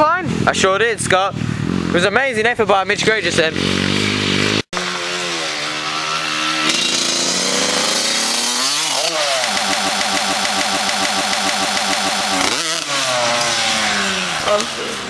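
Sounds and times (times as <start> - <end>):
dirt bike engine revving: 1.3 - 15.0.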